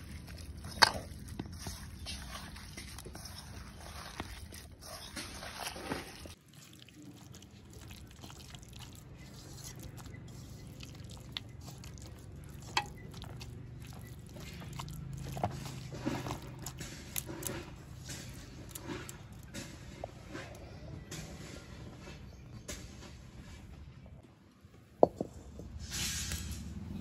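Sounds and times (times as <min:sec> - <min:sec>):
hand squelching wet batter: 0:00.0 - 0:20.8.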